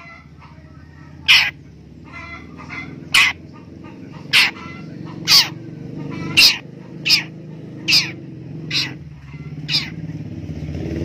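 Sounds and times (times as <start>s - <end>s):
bird harsh scolding calls: 0.0s - 10.2s.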